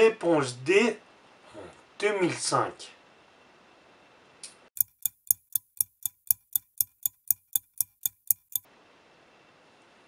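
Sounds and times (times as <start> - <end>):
clock ticking: 4.8 - 8.7.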